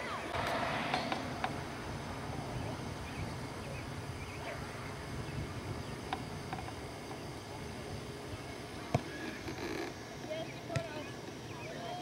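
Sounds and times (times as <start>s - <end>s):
faint distant calls: 0.0s - 12.0s
low rumble: 0.3s - 6.1s.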